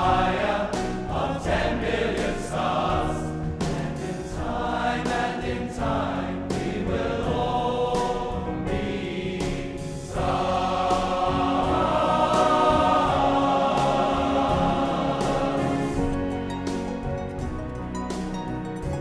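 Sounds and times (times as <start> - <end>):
male choir singing: 0.0 - 16.4
symphony orchestra playing: 11.4 - 19.0.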